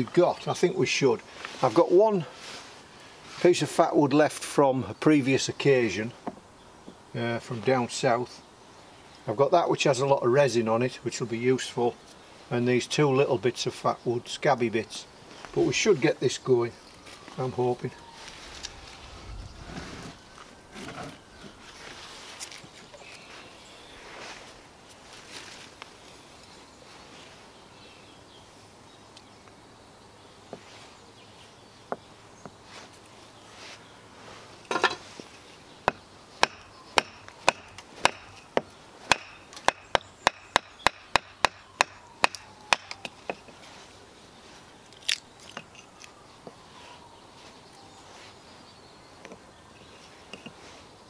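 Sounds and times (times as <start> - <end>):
blade chopping wood on block: 35.9 - 43.5.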